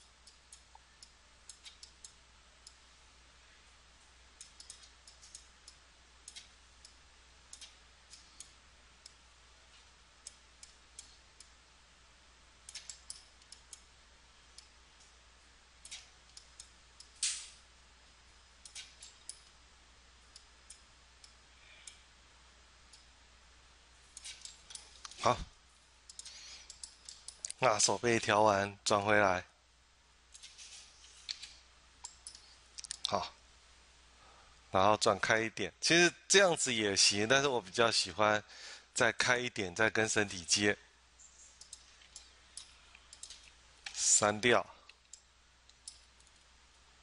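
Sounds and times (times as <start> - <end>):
faint low hum: 0.0 - 47.0
computer mouse clicking: 0.2 - 2.8, 4.4 - 9.2, 12.7 - 13.9, 18.6 - 19.6, 26.1 - 27.6.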